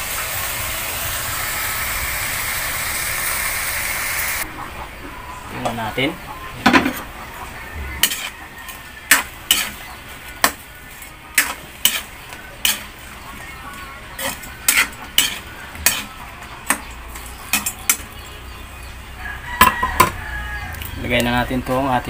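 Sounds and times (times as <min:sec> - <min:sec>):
sauce sizzling: 0:00.0 - 0:04.6, 0:06.6 - 0:19.4
metal spatula scraping a wok: 0:06.6 - 0:18.2.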